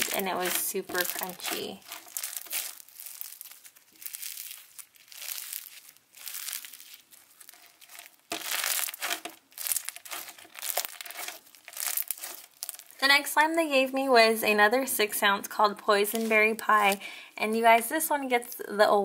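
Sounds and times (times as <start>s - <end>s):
crunchy slime crackling: 0.0s - 13.1s, 15.9s - 17.1s.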